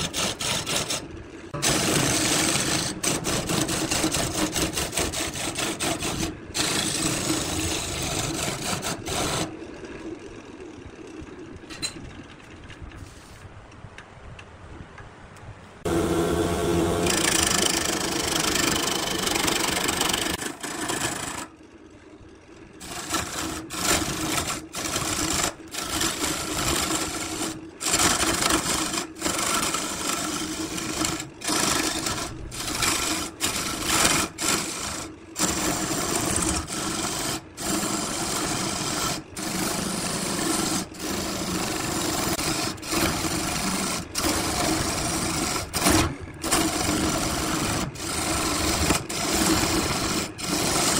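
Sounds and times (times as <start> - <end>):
gouge cutting wood: 0.0 - 9.6, 15.8 - 21.5, 22.8 - 50.9
lathe motor hum: 0.0 - 11.6, 15.8 - 50.9.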